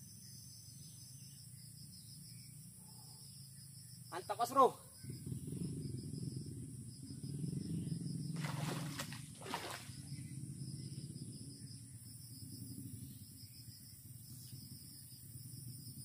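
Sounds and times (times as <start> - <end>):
steady low hum: 4.9 - 16.0
fishing rod swishing: 8.4 - 9.9
lure splashing into water: 8.4 - 9.9.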